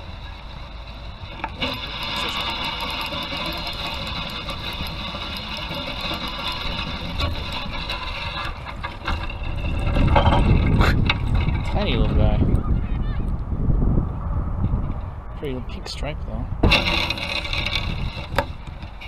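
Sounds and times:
fishing reel whirring: 0.0 - 12.6
wind rumble on microphone: 0.0 - 19.0.

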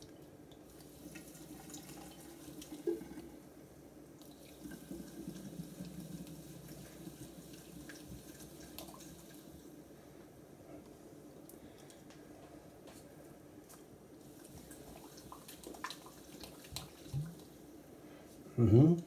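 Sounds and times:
liquid fizzing and foaming: 0.7 - 3.4, 4.2 - 9.8.

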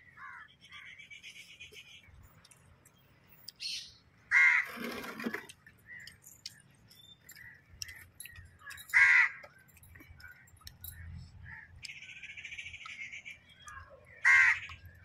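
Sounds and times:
crow cawing: 0.1 - 0.9, 4.3 - 4.7, 8.9 - 9.4, 14.2 - 14.8.

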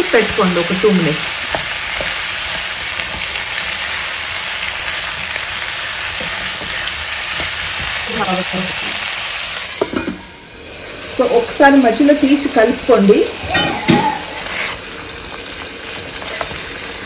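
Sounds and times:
wooden spatula stirring in pan: 0.0 - 9.1
vegetables sizzling in hot oil: 0.0 - 17.0.

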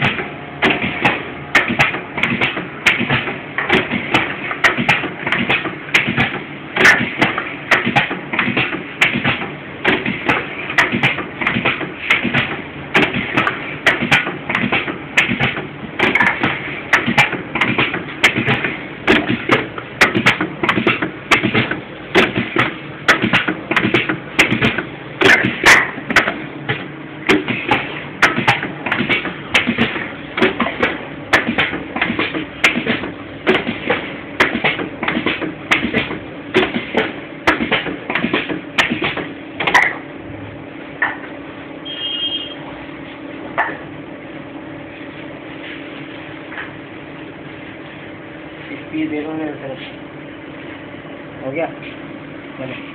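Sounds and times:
printing machine tapping and clanking: 0.0 - 40.0.

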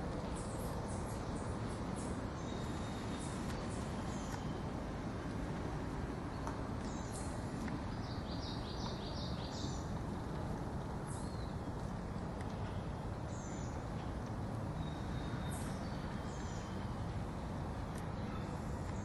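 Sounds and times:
small birds chirping: 6.2 - 17.2.

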